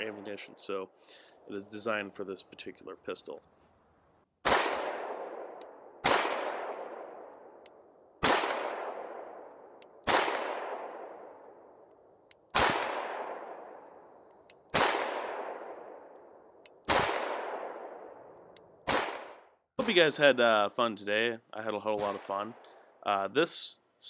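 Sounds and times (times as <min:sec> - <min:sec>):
pistol shots: 0:04.4 - 0:11.8, 0:12.5 - 0:14.1, 0:14.7 - 0:20.0.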